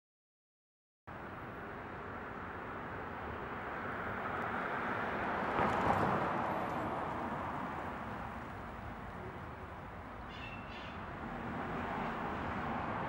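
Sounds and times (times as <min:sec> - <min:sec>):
passing vehicle: 0:01.1 - 0:13.0
faint bird chirps: 0:10.3 - 0:11.0.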